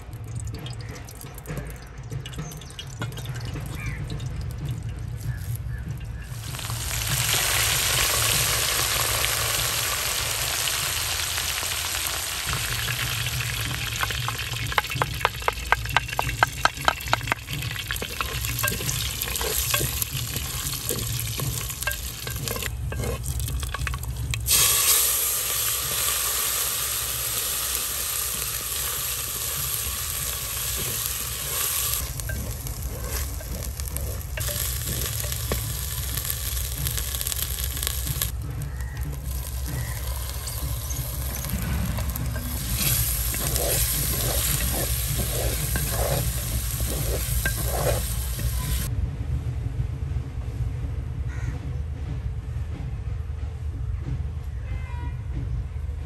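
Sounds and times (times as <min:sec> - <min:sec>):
hot oil sizzling: 0:02.3 - 0:48.9
wooden spatula knocking: 0:13.9 - 0:24.3.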